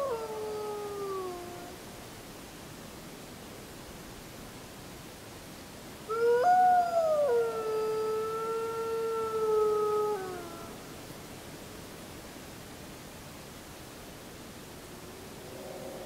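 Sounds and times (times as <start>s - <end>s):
wolf howling: 0.0s - 1.8s, 6.1s - 10.8s
background hiss: 0.0s - 16.0s.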